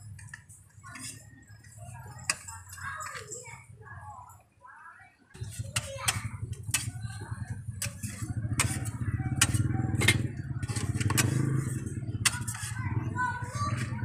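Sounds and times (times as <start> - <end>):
metal spatula scraping hotplate: 0.0 - 3.2, 5.4 - 14.0
small engine idling: 5.4 - 14.0.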